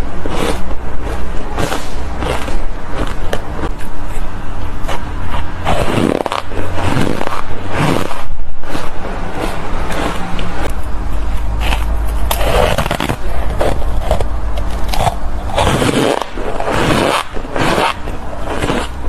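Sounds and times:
ice being chewed crunching: 0.0 - 19.0
steady low hum: 0.0 - 19.0.

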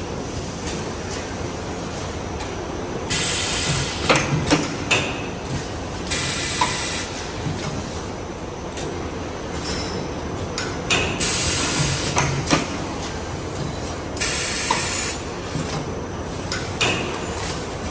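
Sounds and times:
machine clattering with clicks: 0.6 - 8.1, 8.7 - 17.9
machine hiss: 3.1 - 4.1, 6.1 - 7.1, 11.2 - 12.2, 14.2 - 15.2.

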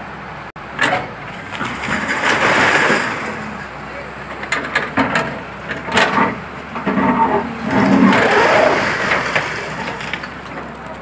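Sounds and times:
excavator engine running: 0.0 - 11.0
concrete cracking and rubble falling: 6.8 - 10.9.

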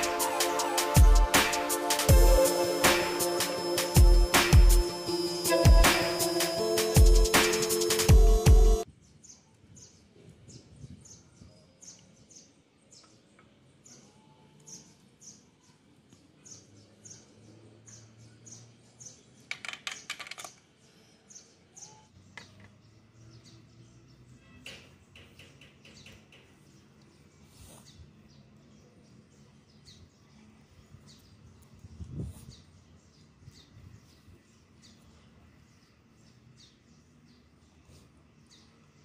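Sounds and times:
bird chirping: 0.0 - 39.0.

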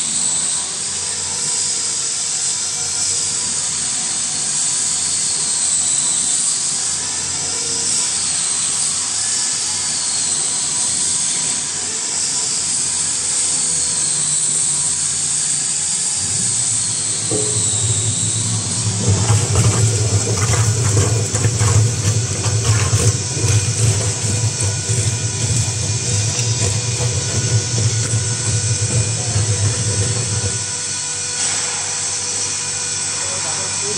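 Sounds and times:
mixing machine rushing hiss: 14.6 - 32.8
low motor hum: 16.0 - 31.4
water knocking and sloshing: 16.2 - 30.8.

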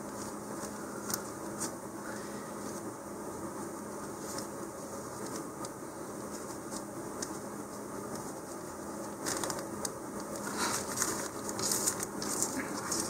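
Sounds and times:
low steady hum: 0.0 - 13.0
thin plastic crinkling: 8.1 - 13.0.

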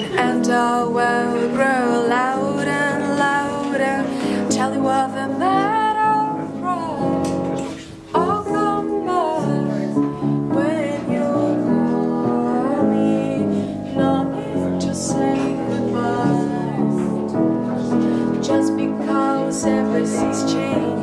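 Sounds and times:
piano chords: 0.0 - 21.0.

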